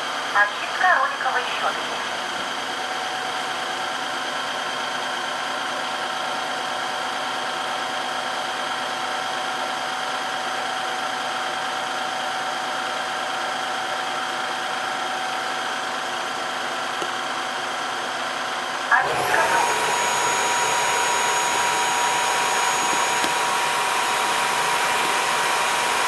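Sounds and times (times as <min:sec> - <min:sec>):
vacuum motor and brush whirring: 0:18.6 - 0:26.0.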